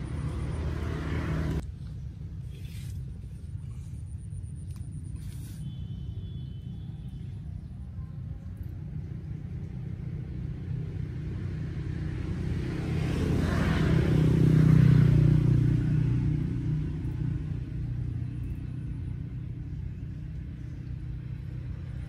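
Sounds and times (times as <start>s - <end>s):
engine passing by: 0.0s - 1.7s, 8.7s - 22.0s.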